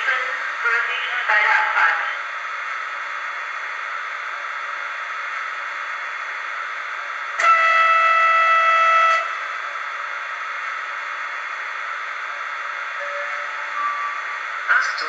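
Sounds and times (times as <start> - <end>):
electric locomotive horn from speaker: 7.4 - 9.4.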